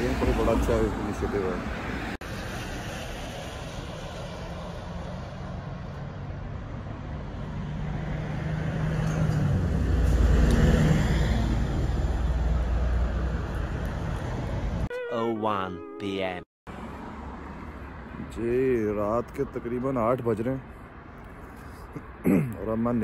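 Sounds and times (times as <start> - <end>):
road traffic noise: 0.0 - 23.0.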